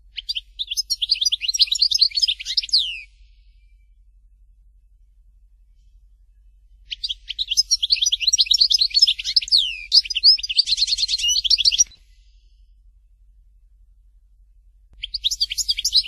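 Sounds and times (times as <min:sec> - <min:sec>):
finch singing twittering song: 0:00.1 - 0:03.8, 0:06.8 - 0:12.2, 0:15.0 - 0:16.0.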